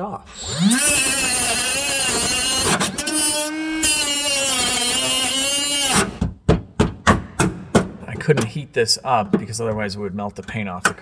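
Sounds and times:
cut-off tool grinding whine: 0:00.3 - 0:06.2.

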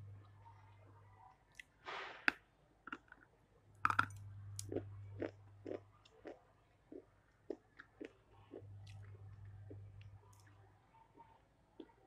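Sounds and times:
crunching food: 0:01.5 - 0:10.6
chewing food: 0:02.9 - 0:12.0.

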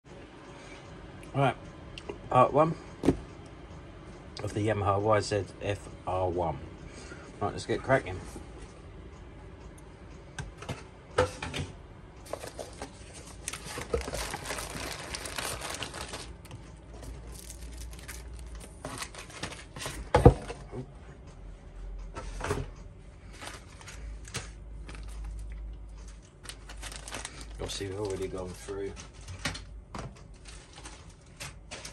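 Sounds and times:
paper and cardboard rustling: 0:12.3 - 0:16.4, 0:17.0 - 0:20.5, 0:26.1 - 0:29.6
plastic bags crinkling: 0:12.3 - 0:20.0, 0:26.1 - 0:29.6, 0:30.2 - 0:31.9.

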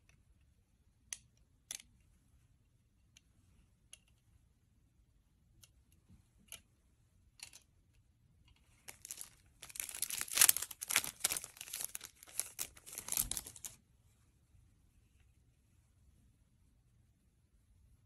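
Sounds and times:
plastic wrapping crinkling: 0:08.8 - 0:13.8.

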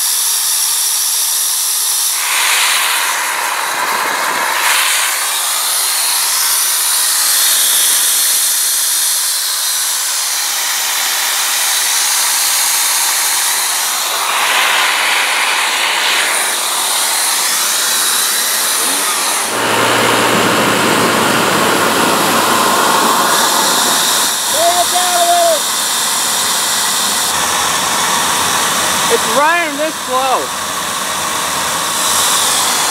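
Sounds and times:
turbojet rushing hiss: 0:00.0 - 0:32.9
low hum: 0:17.3 - 0:24.5.

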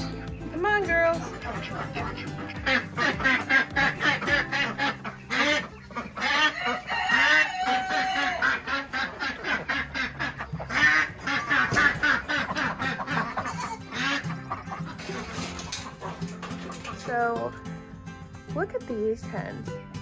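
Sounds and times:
ducks quacking: 0:00.0 - 0:17.6.

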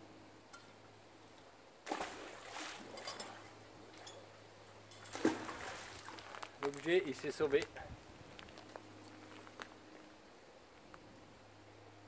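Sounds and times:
water splashing: 0:01.8 - 0:03.5, 0:05.0 - 0:06.5.

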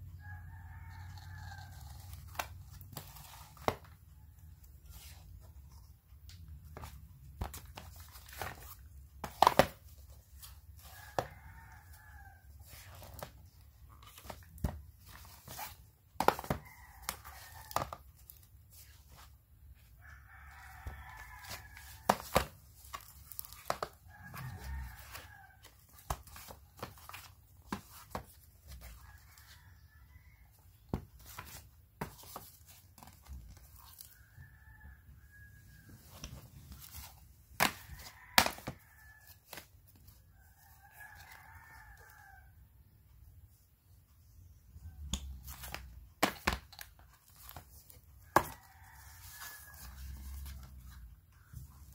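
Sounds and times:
rooster crowing: 0:00.2 - 0:02.1, 0:20.0 - 0:22.1, 0:24.1 - 0:25.7, 0:34.1 - 0:36.2, 0:40.4 - 0:42.6, 0:48.3 - 0:50.9.

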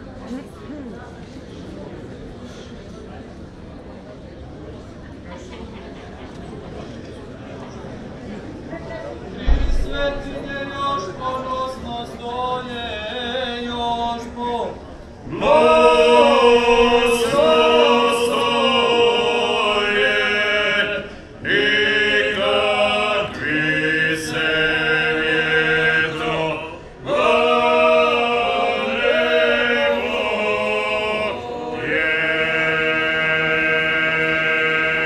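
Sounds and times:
male vocal group singing in harmony: 0:09.4 - 0:35.0.

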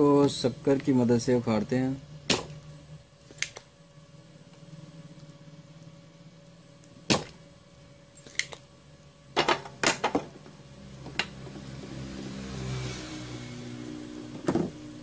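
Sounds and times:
low steady hum: 0:00.0 - 0:12.6
desoldering pump clicks and snaps: 0:03.2 - 0:03.7, 0:08.2 - 0:08.7.

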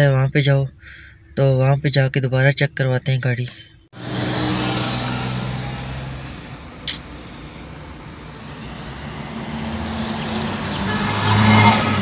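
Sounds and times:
car engine from inside cabin: 0:04.0 - 0:12.0
sharp click: 0:06.8 - 0:07.1.

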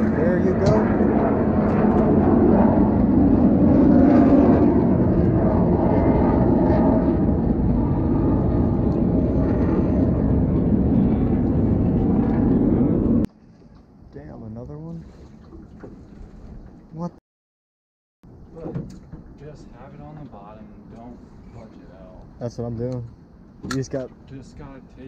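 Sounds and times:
loud engine drone: 0:00.0 - 0:13.3.

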